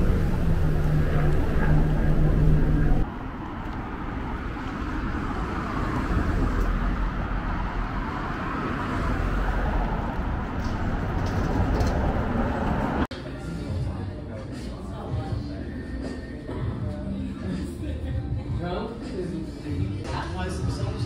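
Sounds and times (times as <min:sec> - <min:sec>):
cars passing on road: 0:00.0 - 0:13.1
loud engine hum: 0:00.0 - 0:13.1.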